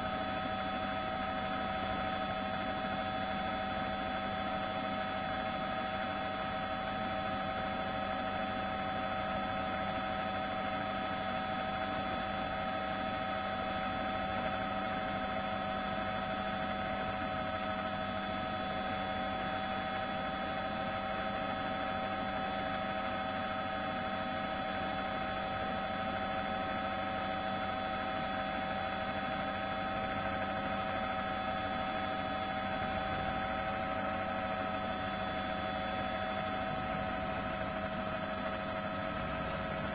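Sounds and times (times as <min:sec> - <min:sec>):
helicopter turbine and rotor drone: 0:00.0 - 0:39.9
constant whining tones: 0:15.8 - 0:39.9.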